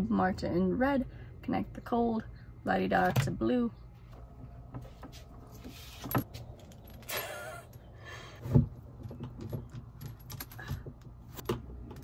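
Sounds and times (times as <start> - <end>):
scraping rustle: 4.8 - 7.2
metal clinks and rattles: 5.8 - 7.9, 8.8 - 12.0.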